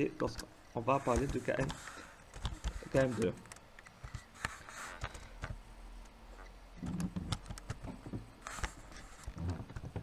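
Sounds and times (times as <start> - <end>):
keyboard and mouse clicks: 1.1 - 5.6, 6.8 - 7.9.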